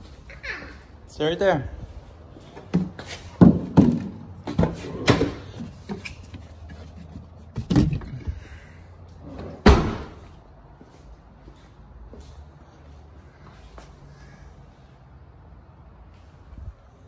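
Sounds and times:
car door slamming: 9.6s - 10.2s.

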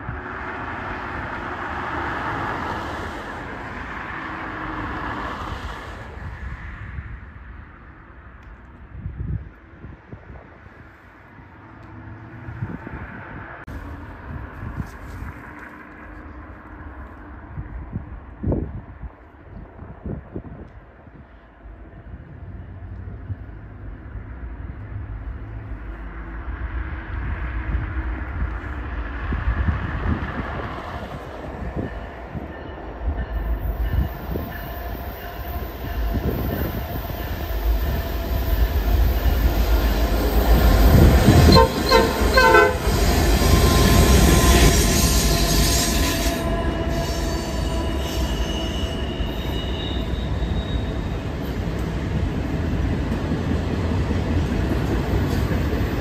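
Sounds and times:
diesel locomotives passing: 0.0s - 56.0s
train air horn blasts: 40.9s - 50.9s
wheel squeal: 41.5s - 51.5s.

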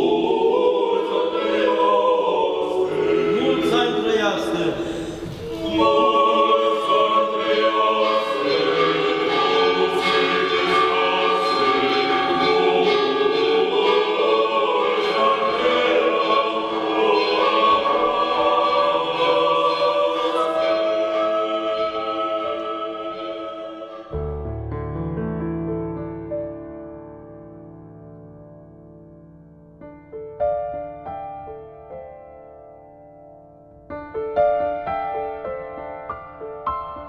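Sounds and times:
choir singing sustained chords: 0.0s - 24.4s.

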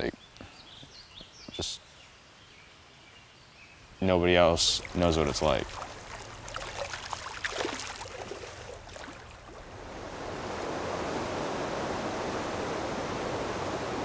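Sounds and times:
small water splashes: 4.4s - 9.9s
river water rushing: 4.4s - 14.0s.

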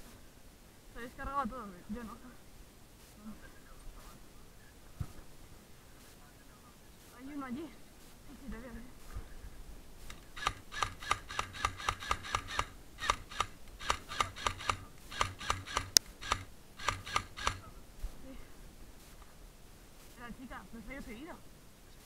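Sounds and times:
airsoft rifle shots: 10.0s - 17.8s.

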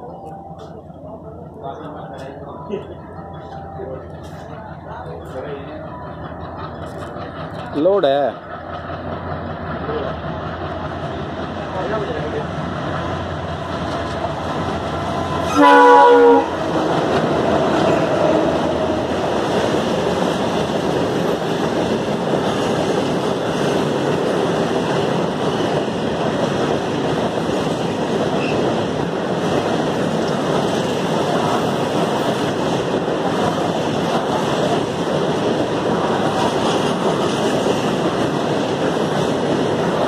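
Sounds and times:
train wheels on rails: 0.0s - 40.0s
locomotive horn: 15.2s - 16.8s.

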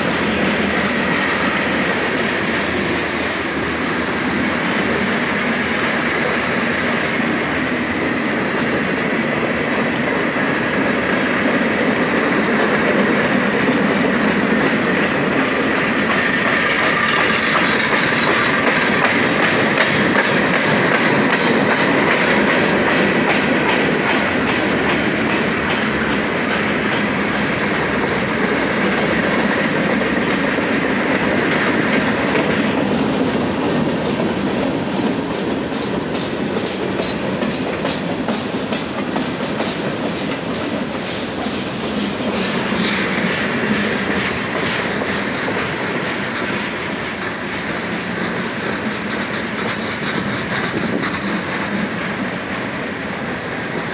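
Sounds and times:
train wheels rumbling: 0.0s - 53.9s
wheels clicking over rail joints: 11.1s - 52.8s.

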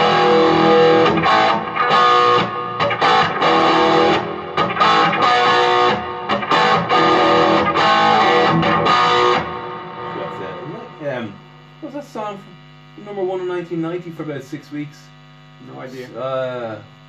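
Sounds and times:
electric guitar strummed chords: 0.0s - 11.8s.

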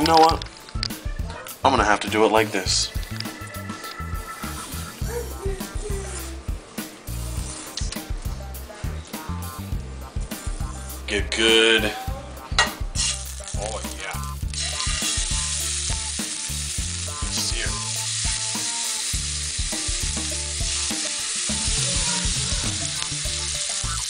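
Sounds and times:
fish sizzling in hot oil: 12.8s - 24.0s.

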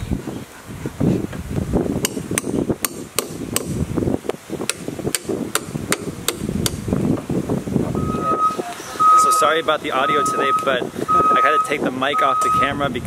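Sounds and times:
hammer knocking on wooden boards: 2.0s - 3.8s, 4.7s - 7.3s.

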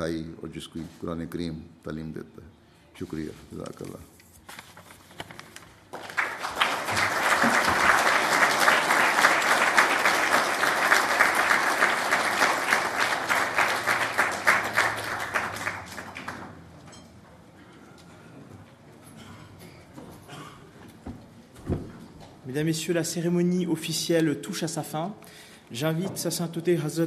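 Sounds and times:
large audience applauding: 5.9s - 16.6s.

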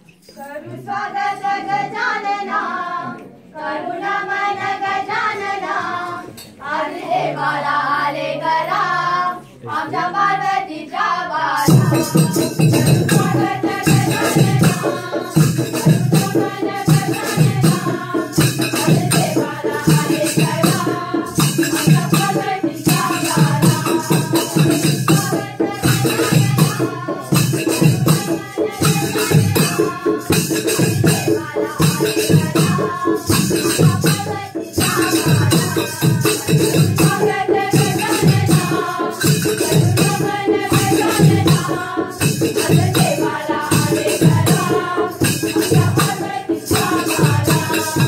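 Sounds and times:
group of voices singing: 0.0s - 48.0s
loud percussion with steady beat: 11.6s - 48.0s.

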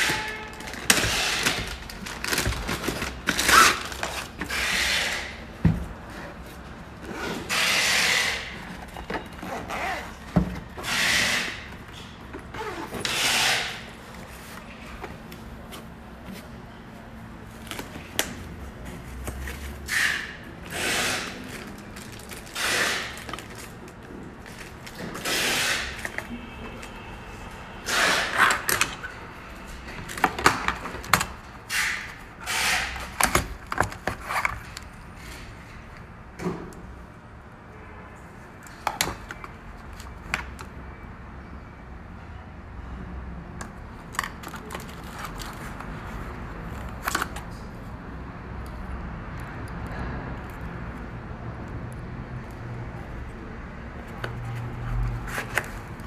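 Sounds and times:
tools scraping and rubbing: 0.0s - 14.8s, 18.8s - 23.7s.

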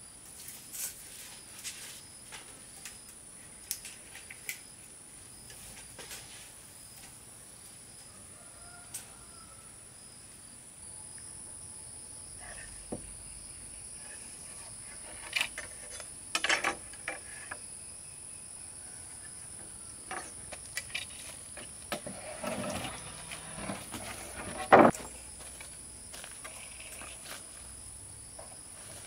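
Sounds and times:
wooden planks knocking: 23.6s - 25.1s.

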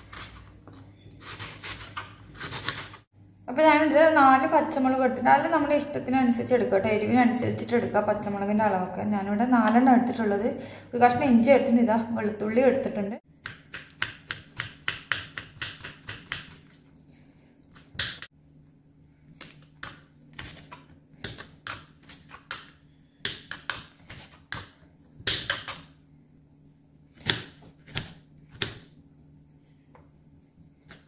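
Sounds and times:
knife chopping on wooden board: 13.4s - 16.6s, 19.4s - 25.9s.

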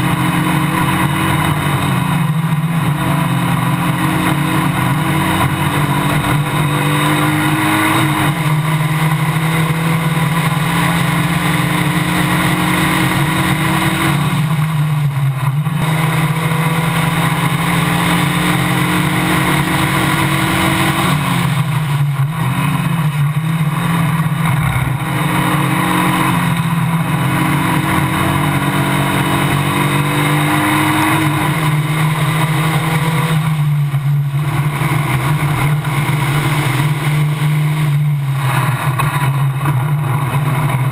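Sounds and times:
race car engine running hard: 0.0s - 40.9s.

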